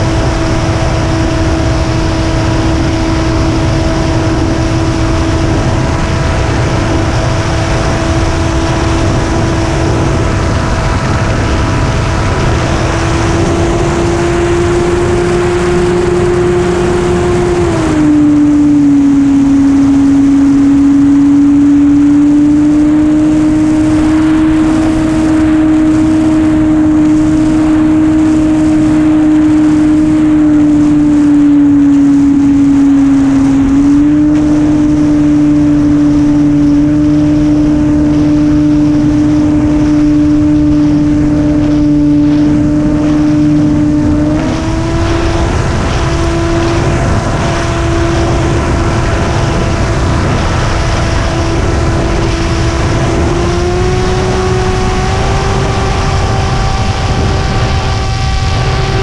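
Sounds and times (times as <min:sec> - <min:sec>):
model airplane engine and propeller: 0:00.0 - 0:59.0
wind rushing: 0:00.0 - 0:59.0.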